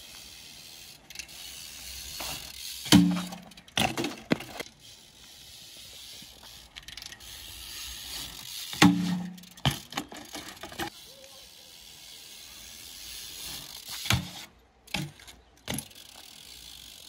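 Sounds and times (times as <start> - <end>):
bike hub ratchet clicking: 0.1 - 3.8, 4.6 - 14.4, 15.6 - 17.0
bike knocking on landing: 2.9 - 4.6.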